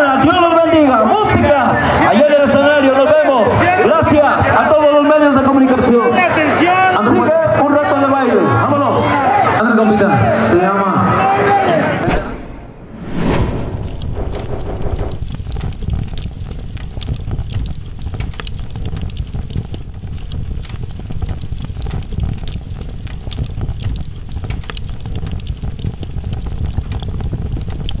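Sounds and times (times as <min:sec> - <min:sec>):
fire crackling and rumbling: 0:00.0 - 0:08.7, 0:12.1 - 0:28.0.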